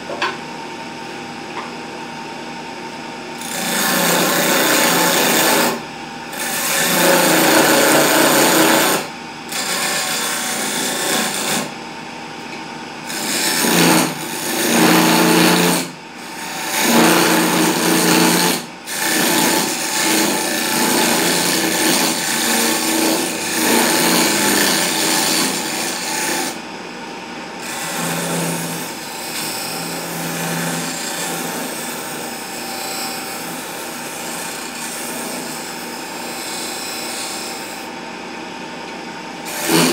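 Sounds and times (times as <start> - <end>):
chisel scraping wood on a lathe: 3.4 - 11.7, 13.1 - 26.6, 27.6 - 33.5, 34.2 - 35.6, 36.4 - 37.8, 39.5 - 39.9.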